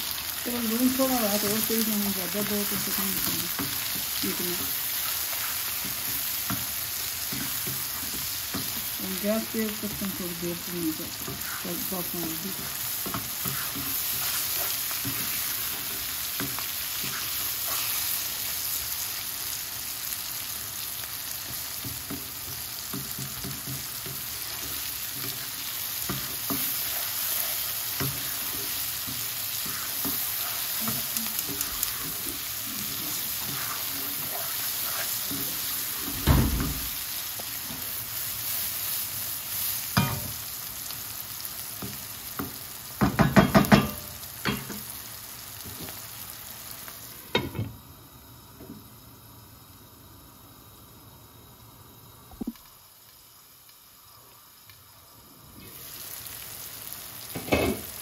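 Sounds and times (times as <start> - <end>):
vegetables sizzling in oil: 0.0 - 58.0
wooden spatula scraping wok: 11.2 - 18.5, 21.5 - 37.9.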